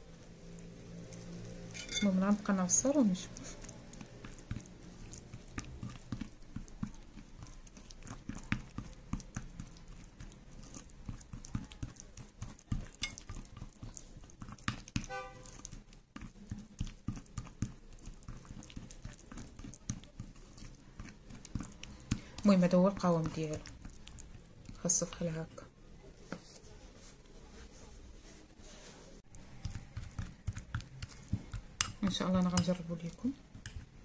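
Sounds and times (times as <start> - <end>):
plastic spoon stirring paste in bowl: 0.1 - 34.0
spoon squeak: 1.8 - 2.1.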